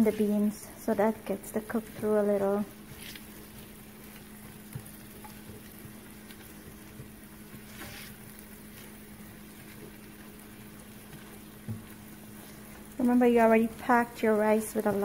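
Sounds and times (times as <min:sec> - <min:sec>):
onion sizzling in oil: 0:00.0 - 0:15.0
steady low hum: 0:00.0 - 0:15.0
spatula scraping a pan: 0:07.5 - 0:09.0.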